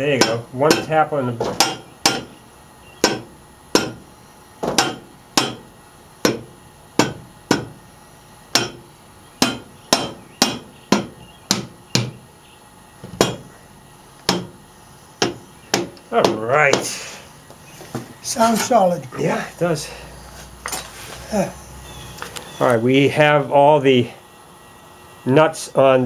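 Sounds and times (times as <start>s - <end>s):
hammer tapping on cast iron: 0.2s - 2.4s, 3.0s - 4.0s, 4.6s - 7.8s, 8.5s - 8.8s, 9.4s - 12.2s, 13.1s - 13.5s, 14.2s - 14.6s, 15.2s - 17.0s.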